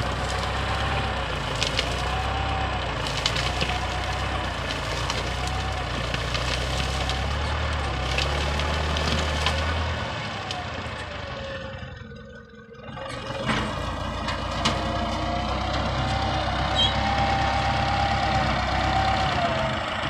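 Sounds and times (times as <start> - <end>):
tractor engine under load: 0.0 - 20.0
brushwood snapping: 0.1 - 2.4, 3.0 - 10.6.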